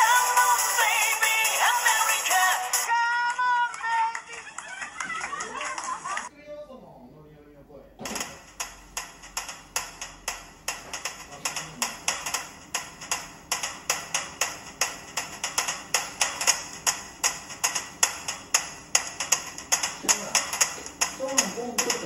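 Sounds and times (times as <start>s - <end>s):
music with sharp clicking beat: 0.0s - 2.9s, 8.0s - 22.0s.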